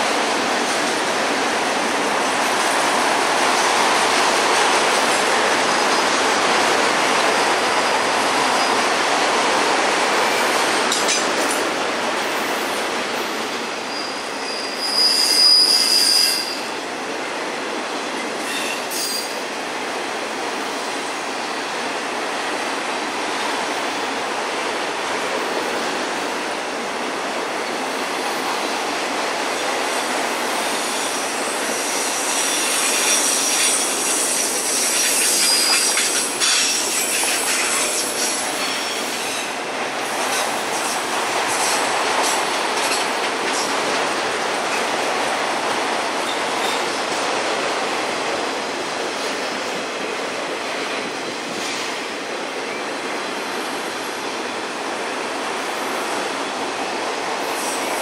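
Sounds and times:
wheels clicking over rail joints: 10.8 - 11.7, 40.0 - 45.1
high-pitched wheel squeal: 13.9 - 16.6, 18.4 - 19.3.

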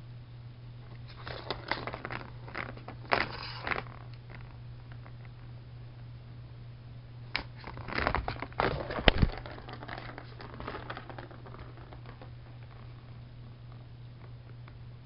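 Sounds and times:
steady low hum: 0.0 - 15.0
cat toy scratching and clicking: 1.0 - 5.2, 7.4 - 13.1.

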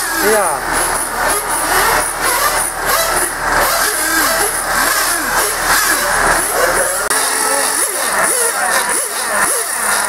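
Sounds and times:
rc car engines revving: 0.0 - 10.0.

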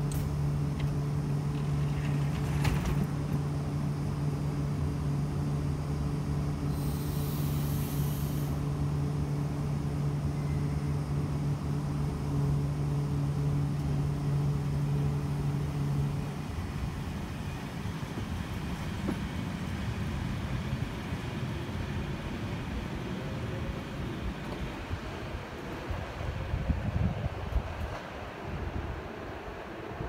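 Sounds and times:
electric train hum: 0.0 - 30.0
train running noise: 0.0 - 30.0
air hiss: 6.6 - 8.7.

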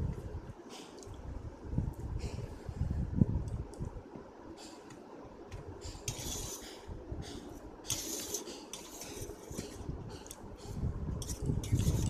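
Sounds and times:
fork scraping a metal plate: 5.9 - 12.0.

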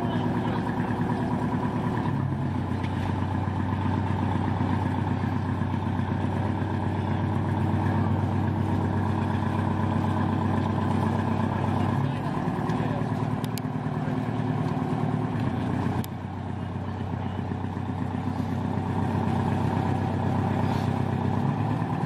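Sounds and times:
boat engines at low speed: 0.0 - 22.0.

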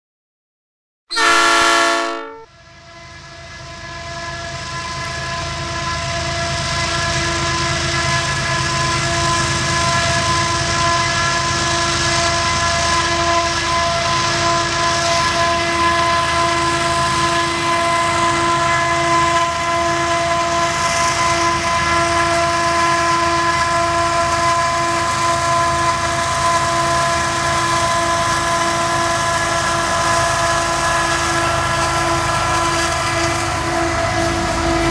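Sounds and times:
high even whine: 1.1 - 2.5
locomotive horn blast: 1.1 - 2.6, 15.3 - 27.3
diesel locomotives rumbling: 1.1 - 34.9.

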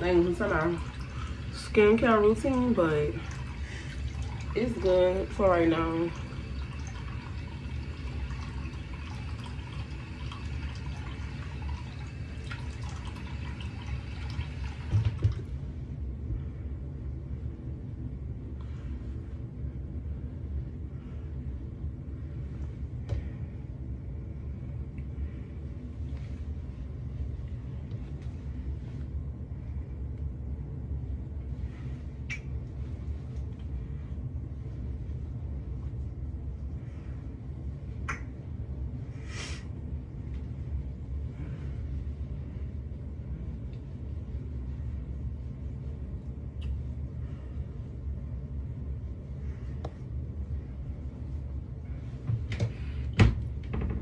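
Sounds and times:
low rumble: 15.1 - 54.0.

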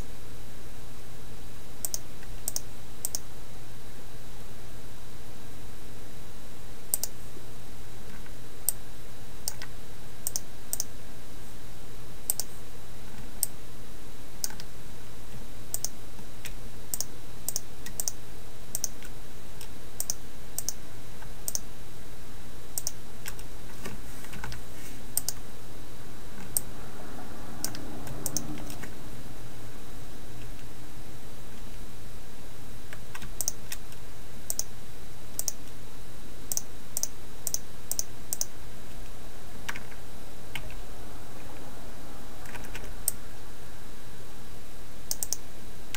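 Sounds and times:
steady low hum: 0.0 - 45.9
mouse and keyboard clicks: 45.1 - 45.4.

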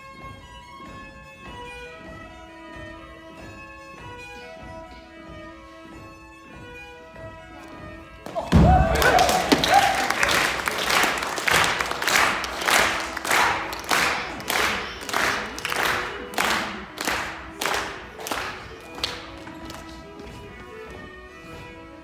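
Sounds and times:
fiddle playing folk tune: 0.0 - 22.0
rhythmic clapping: 0.0 - 22.0
heavy thud on wooden stage: 8.3 - 9.8
audience cheering: 8.3 - 11.6.

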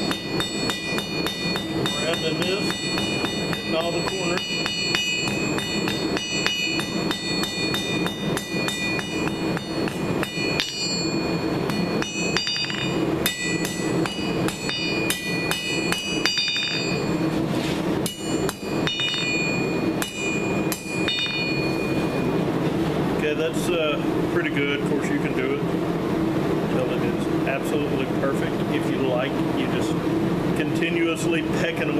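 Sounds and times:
hammer striking steel on anvil: 0.0 - 17.4, 18.0 - 22.4.

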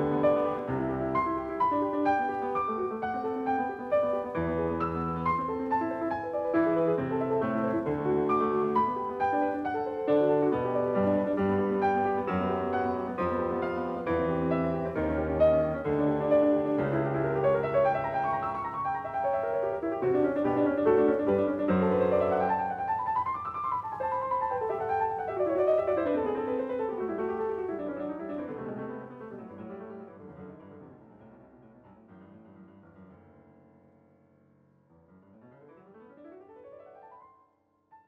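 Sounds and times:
solo piano music: 0.0 - 38.0.

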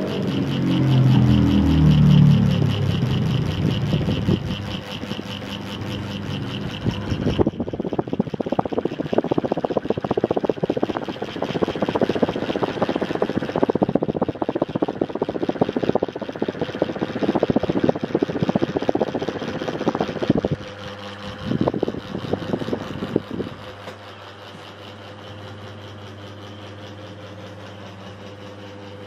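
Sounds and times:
fan motor hum: 0.0 - 29.0
fan wind buffeting microphone: 0.0 - 29.0.

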